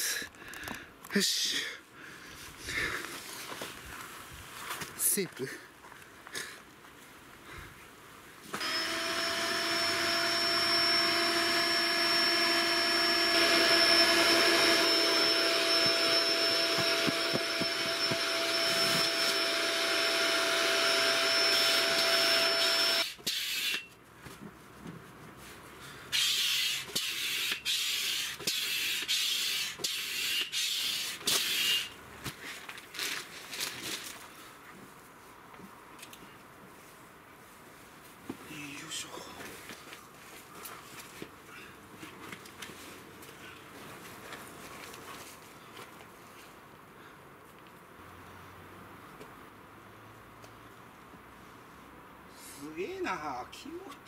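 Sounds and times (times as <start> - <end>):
electric air pump whining: 8.5 - 23.9, 26.1 - 32.0.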